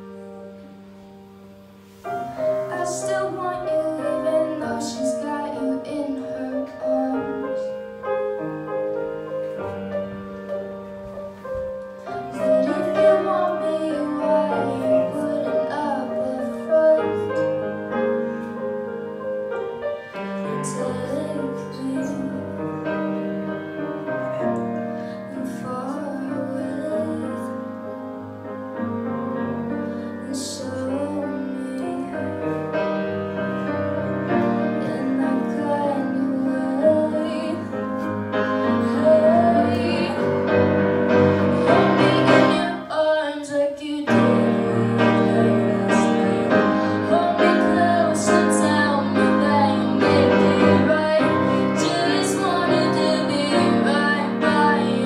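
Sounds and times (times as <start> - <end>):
piano accompaniment: 0.0 - 55.0
woman singing into microphone: 2.6 - 7.7, 12.2 - 17.5, 20.3 - 22.8, 25.3 - 27.6, 30.2 - 32.7, 34.6 - 37.8, 38.6 - 40.6, 41.3 - 55.0.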